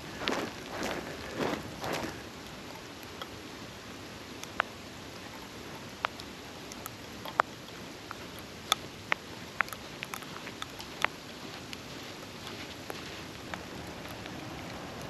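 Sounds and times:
footsteps crunching through snow: 0.0s - 2.3s, 9.9s - 14.6s
steady hiss: 0.0s - 15.0s
sharp ticks: 4.3s - 15.0s.

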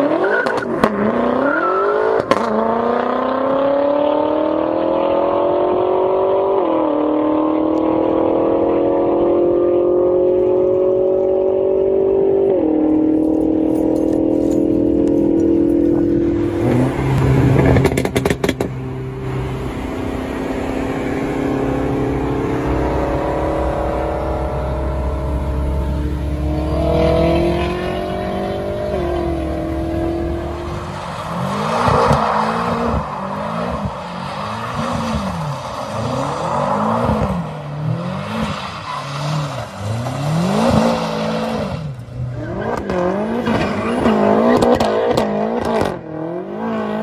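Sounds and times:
car engine accelerating hard: 0.0s - 47.0s
engine and road drone: 0.0s - 47.0s
exhaust crackling: 12.9s - 37.5s.

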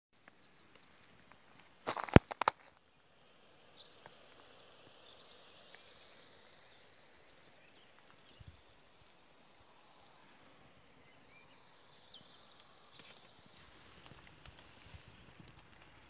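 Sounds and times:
wood fire hissing and crackling: 0.3s - 16.0s
sharp clicks and cracks: 1.6s - 2.8s, 12.5s - 16.0s.

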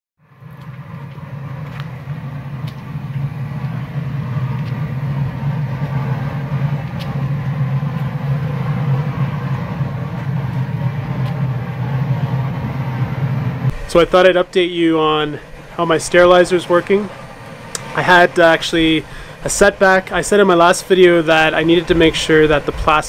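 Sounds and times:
steam sterilizer roaring: 0.2s - 23.0s
steam hissing from valves: 13.7s - 23.0s.

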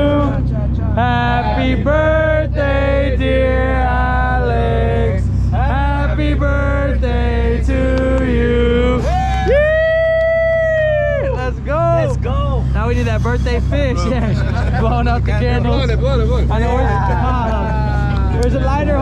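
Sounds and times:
steady low drone: 0.0s - 19.0s.

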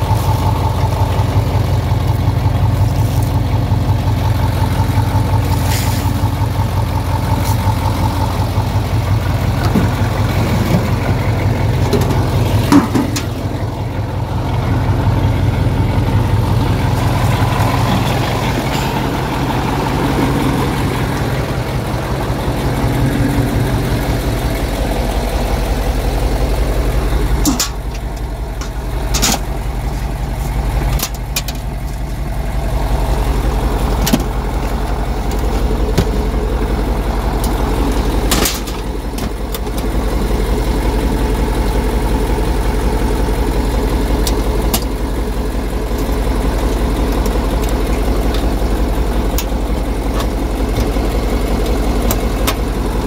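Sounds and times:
heavy truck engine running: 0.0s - 53.0s
truck body knocks and rattles: 9.2s - 13.6s, 33.9s - 36.5s.

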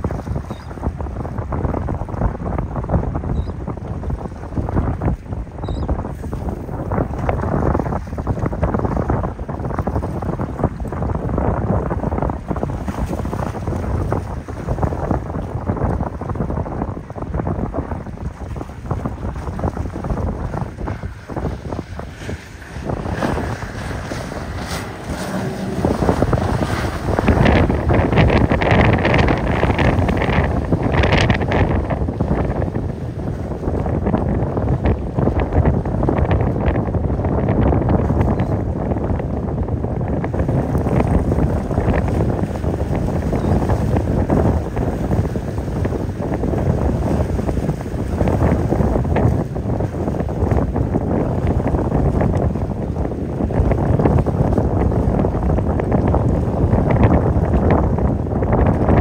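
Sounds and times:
boat noise: 0.0s - 59.0s
choppy sea wash: 0.0s - 59.0s
wind buffeting microphone: 0.0s - 59.0s
motorboat engine passing: 19.3s - 33.7s.

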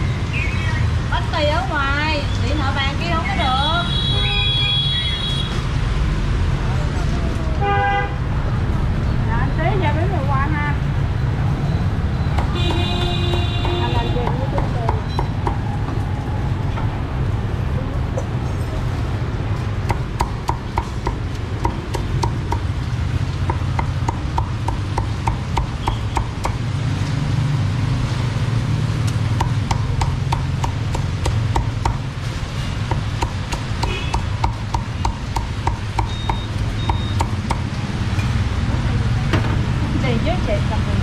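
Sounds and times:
cleaver chopping on wooden block: 12.4s - 15.6s, 19.9s - 22.7s, 23.4s - 26.6s, 29.3s - 32.1s, 32.8s - 37.7s.

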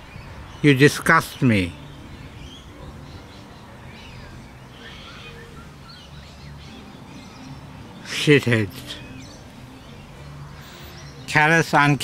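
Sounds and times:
faint bird chirps: 1.8s - 8.1s, 8.8s - 11.4s.

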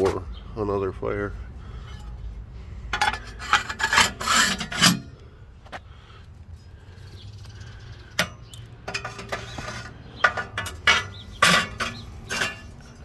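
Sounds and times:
metal grate clanking on steel: 3.0s - 5.1s, 8.2s - 13.0s.

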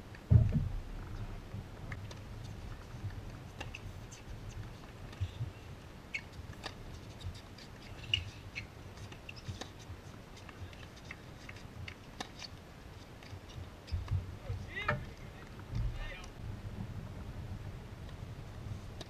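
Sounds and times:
low steady rumble: 0.0s - 7.0s, 14.0s - 19.0s.

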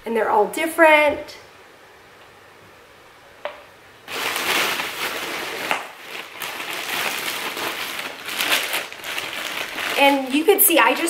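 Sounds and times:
plastic bags rustling: 4.1s - 11.0s.

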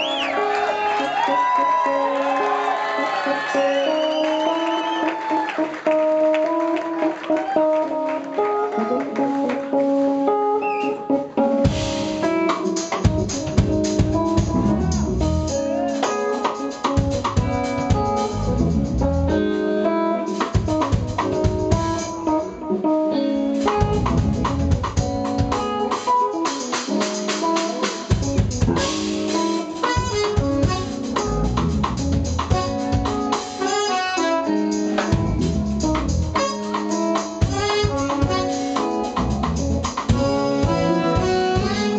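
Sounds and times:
bass guitar: 0.0s - 41.9s
electric guitar chords: 0.0s - 41.9s
keyboards holding chords: 0.0s - 41.9s
drum kit groove: 11.5s - 19.4s, 20.2s - 22.6s, 23.5s - 41.9s
saxophone: 28.7s - 41.9s
trumpet: 28.8s - 31.5s, 32.5s - 35.5s, 36.1s - 39.2s, 40.1s - 41.9s.

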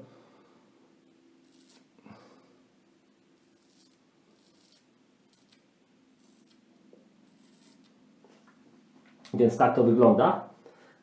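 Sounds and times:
straight razor scraping stubble: 1.4s - 1.9s, 3.4s - 5.6s, 6.2s - 6.6s, 7.3s - 8.0s.

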